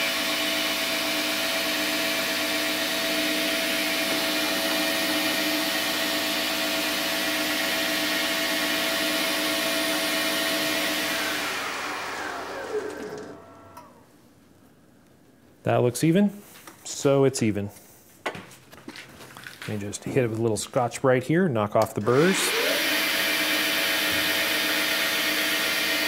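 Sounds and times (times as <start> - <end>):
metal lathe motor whining: 0.0 - 14.0, 22.0 - 26.0.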